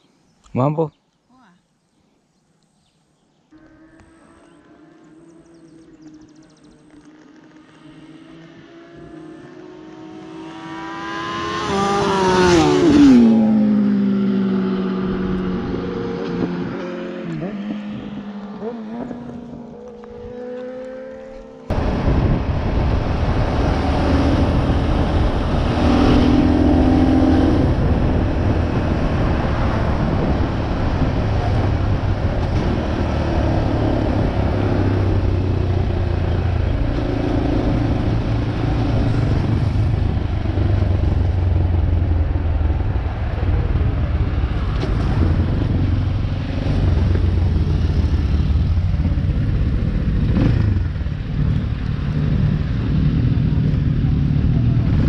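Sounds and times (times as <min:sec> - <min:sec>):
motorcycle engine running: 0:17.4 - 0:55.0.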